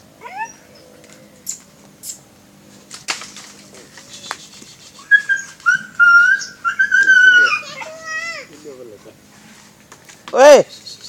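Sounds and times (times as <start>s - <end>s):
dog whining: 0.2s - 1.0s, 5.0s - 8.5s.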